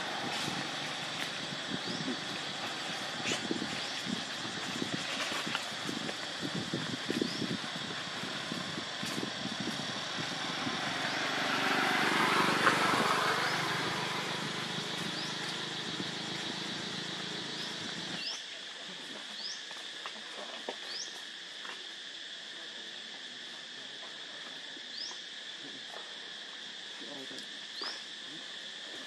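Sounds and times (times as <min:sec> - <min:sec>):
low rumbling noise: 0:00.0 - 0:18.2
insect drone: 0:00.0 - 0:29.0
bird chirps: 0:14.9 - 0:18.4.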